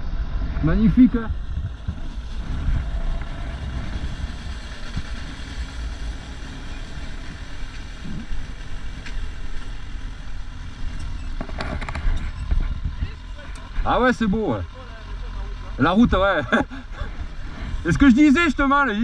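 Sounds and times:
wind rumble on microphone: 0:00.0 - 0:13.9
motorcycle engine running: 0:00.0 - 0:19.0.

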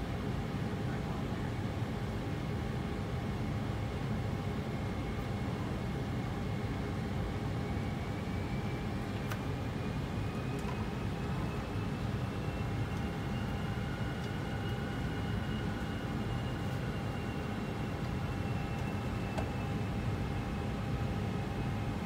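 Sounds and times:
cockpit engine and airflow rumble: 0:00.0 - 0:22.0
high engine whine: 0:04.5 - 0:22.0.

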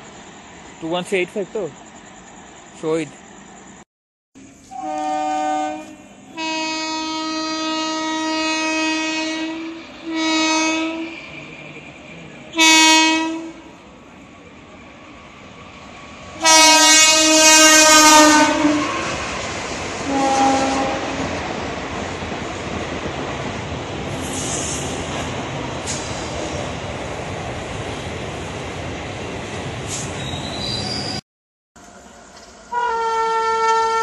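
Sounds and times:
train rumble and rail clatter: 0:00.0 - 0:03.8, 0:04.4 - 0:31.2, 0:31.8 - 0:34.0
locomotive horn blasts: 0:04.7 - 0:11.3, 0:12.5 - 0:13.7, 0:16.4 - 0:19.2, 0:20.0 - 0:21.3, 0:32.7 - 0:34.0.

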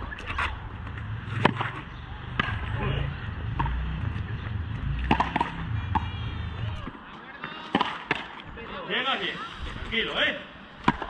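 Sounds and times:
low rumble: 0:00.0 - 0:07.0
ball hitting racquet and wall: 0:00.2 - 0:02.8, 0:03.4 - 0:07.0, 0:07.7 - 0:08.4, 0:10.8 - 0:11.0.

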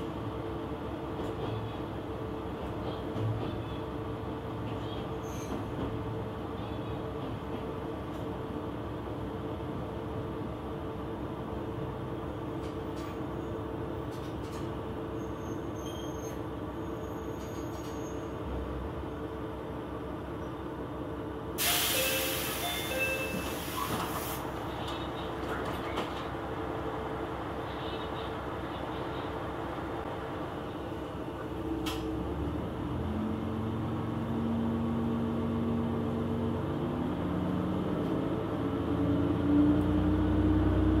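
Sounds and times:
railcar engine drone: 0:00.0 - 0:41.0
loud hiss: 0:21.6 - 0:24.5.

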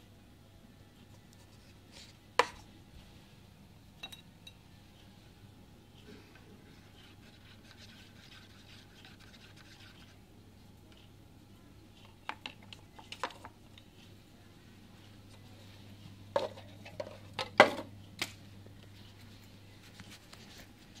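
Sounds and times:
low steady hum: 0:00.0 - 0:21.0
wooden stirrer scraping paper cup: 0:07.0 - 0:10.2.

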